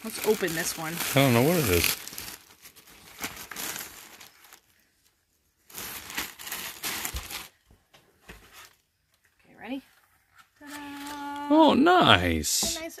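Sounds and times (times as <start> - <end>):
plastic bag crinkling: 0.0 - 7.7.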